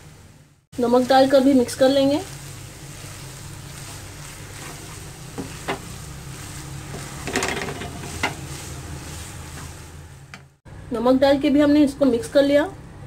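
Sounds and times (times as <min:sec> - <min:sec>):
soft sizzling: 0:00.7 - 0:10.6
wooden spatula scraping frying pan: 0:01.6 - 0:10.0.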